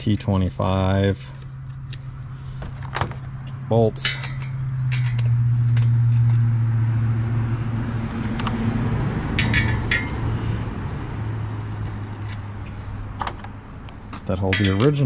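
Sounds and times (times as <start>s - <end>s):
steady low hum: 0.0s - 15.0s
metal bolts clinking: 2.9s - 6.4s, 9.3s - 10.3s, 13.2s - 15.0s.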